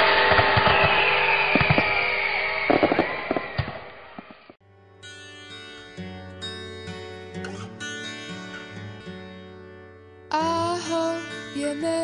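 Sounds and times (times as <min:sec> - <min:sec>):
fireworks popping and crackling: 0:00.2 - 0:04.5.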